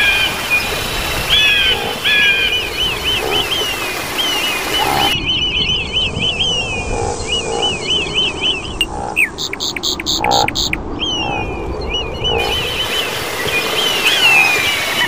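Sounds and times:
high chirping animal calls: 1.4 - 13.1.

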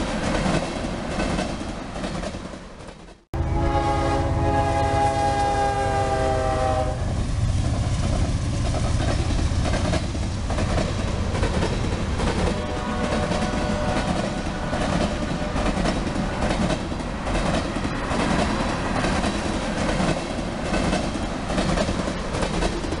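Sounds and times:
wheels clicking over rail joints: 7.6 - 23.0.

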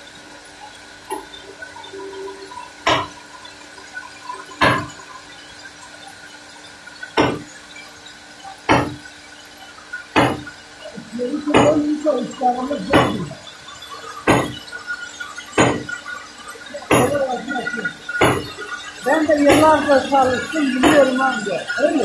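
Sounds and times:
sawmill machinery humming: 10.2 - 14.8, 15.4 - 22.0
sharp noisy bursts: 15.5 - 22.0.

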